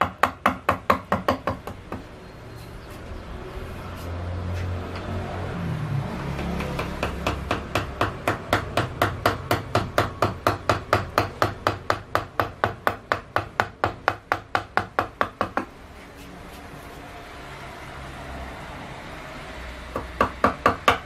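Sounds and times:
mallet tapping a chisel into wood: 0.0s - 2.0s, 6.4s - 15.7s, 20.0s - 21.0s.

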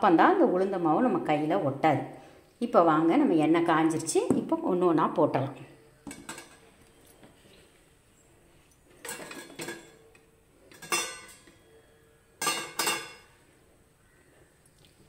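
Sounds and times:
metal utensils clinking together: 6.1s - 6.6s, 9.0s - 10.0s, 10.7s - 11.6s, 12.4s - 13.3s.

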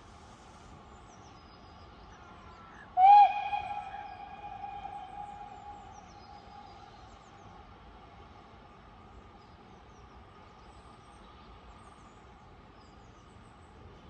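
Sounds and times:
steam locomotive whistle: 3.0s - 6.6s.

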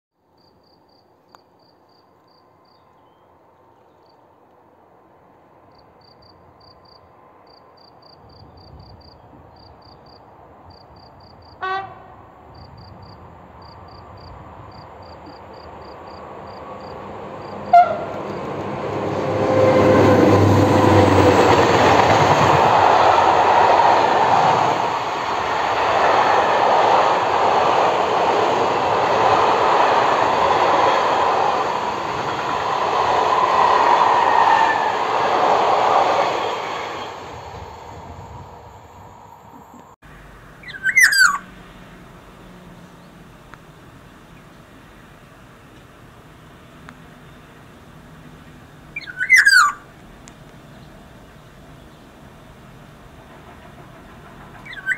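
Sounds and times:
crickets chirping: 0.2s - 3.3s, 5.6s - 54.9s
train horn blasts: 11.6s - 12.3s, 17.5s - 18.4s
train wheels clattering on rails: 15.1s - 37.3s, 52.8s - 54.9s.

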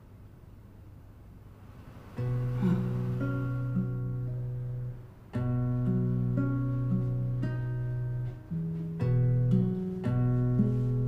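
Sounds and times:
plucked guitar music: 2.2s - 11.0s.

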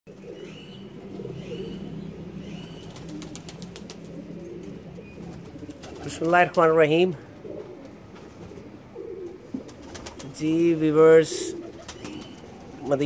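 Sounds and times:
pigeons cooing: 0.1s - 13.0s.

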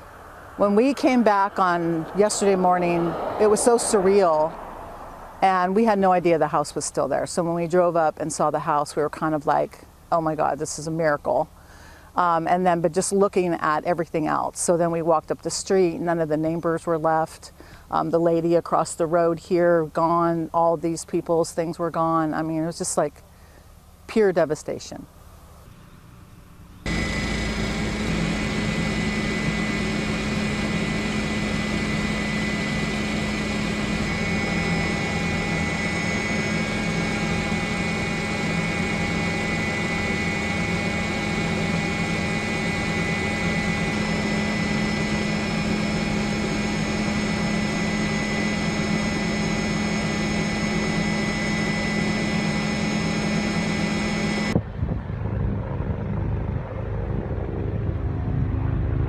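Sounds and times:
helicopter engine and rotor drone: 0.0s - 14.8s, 25.7s - 59.0s.

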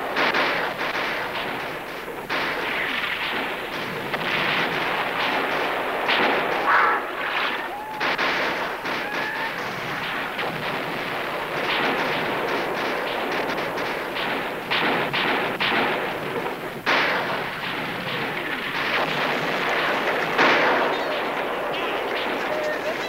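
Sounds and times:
loud single gunshots: 0.0s - 22.5s
musket fire crackle: 0.0s - 23.0s.

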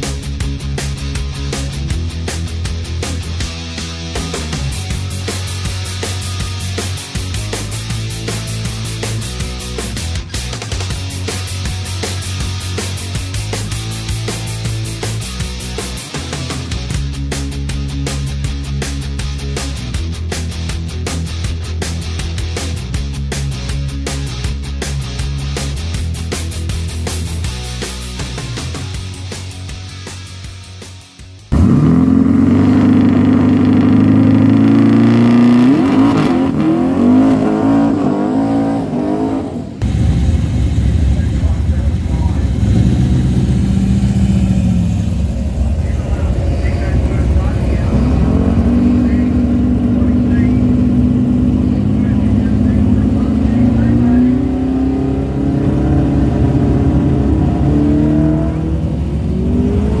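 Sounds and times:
drag car engine revving: 0.0s - 29.8s, 31.5s - 60.0s
racing car engine accelerating: 31.5s - 60.0s.

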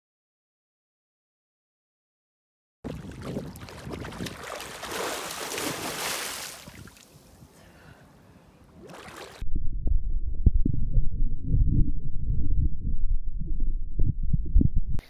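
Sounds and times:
water splashing from swimmers: 2.9s - 7.2s
muffled underwater rumble: 9.5s - 15.0s.

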